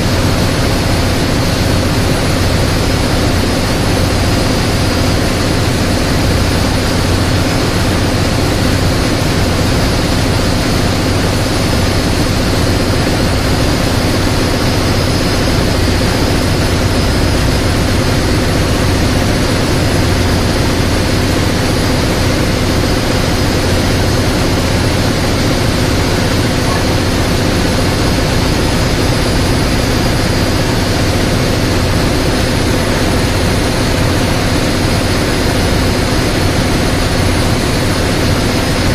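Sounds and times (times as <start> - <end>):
engine room machinery drone: 0.0 - 38.9.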